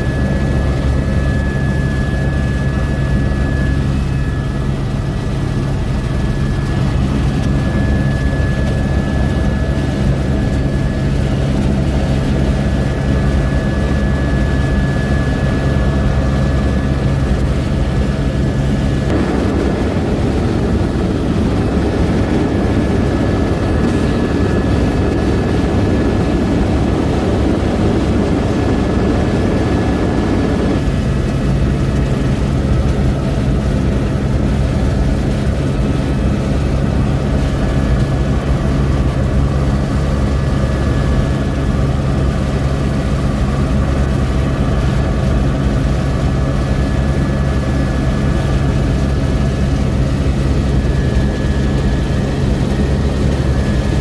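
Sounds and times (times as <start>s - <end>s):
helicopter rotor and engine droning: 0.0s - 54.0s
rushing noise: 19.1s - 24.0s.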